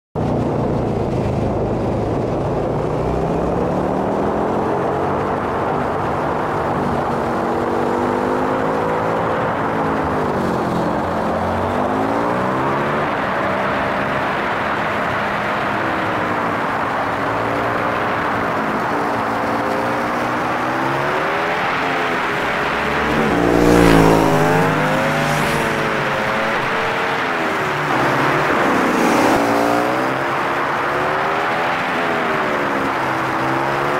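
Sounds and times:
wind and road noise: 0:00.2 - 0:33.9
motorcycle engine revving: 0:17.1 - 0:33.9.

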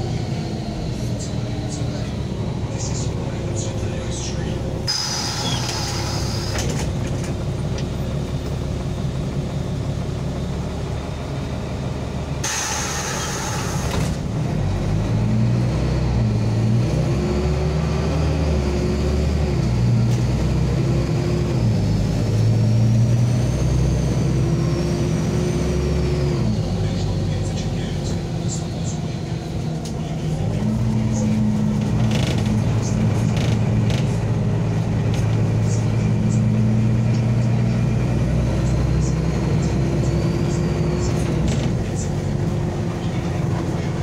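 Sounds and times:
bus diesel engine accelerating: 0:00.0 - 0:44.0
pneumatic hiss: 0:04.9 - 0:06.8, 0:12.4 - 0:14.1.

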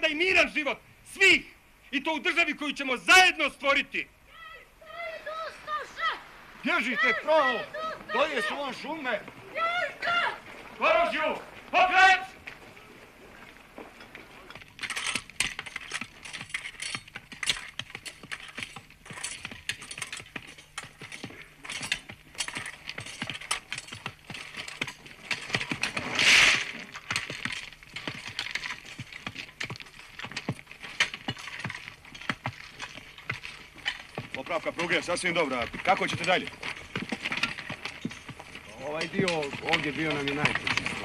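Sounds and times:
hand tools clinking on rail: 0:14.0 - 0:26.0, 0:27.0 - 0:41.0.

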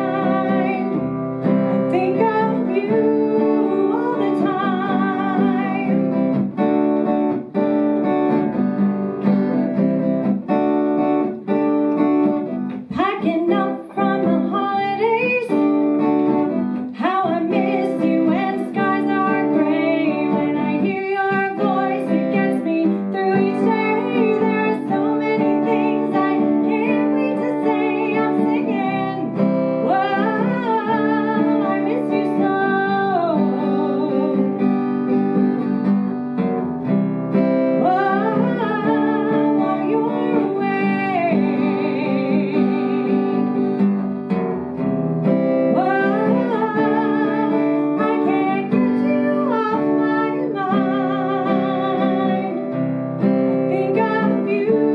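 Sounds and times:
woman singing: 0:00.0 - 0:06.7, 0:12.4 - 0:35.8, 0:37.3 - 0:44.1, 0:45.4 - 0:54.9
guitar chords: 0:00.0 - 0:54.9.

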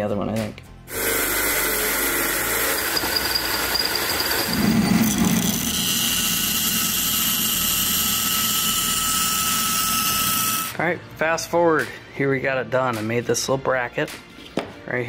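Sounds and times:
band saw whining: 0:00.9 - 0:10.8
cordless drill boring metal: 0:00.9 - 0:10.8.

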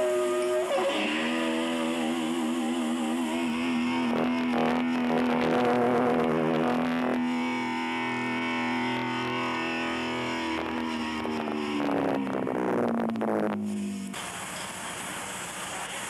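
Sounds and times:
wavering higher tone: 0:00.0 - 0:14.1
amplified instrument notes: 0:00.0 - 0:14.2.

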